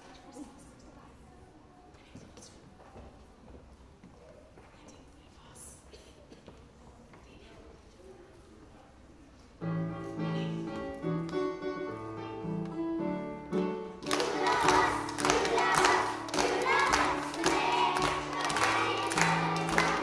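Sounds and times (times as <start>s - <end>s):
children's choir singing: 14.0s - 20.0s
hand-clapping: 14.0s - 20.0s.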